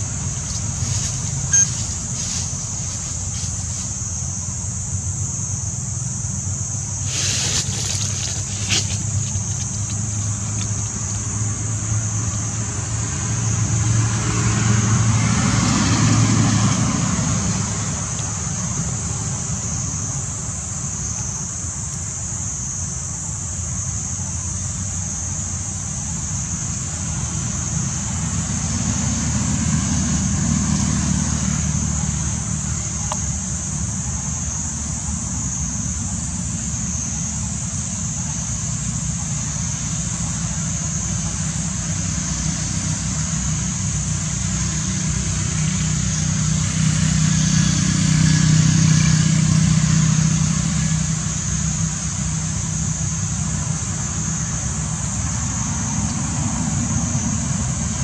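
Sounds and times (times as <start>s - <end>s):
steady high hiss: 0.0s - 13.5s
vehicle engine rumble: 0.0s - 58.0s.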